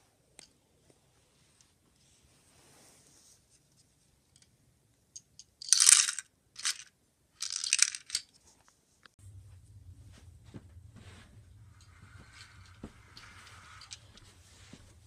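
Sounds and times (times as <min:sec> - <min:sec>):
plastic toy parts clattering: 0:05.2 - 0:08.4.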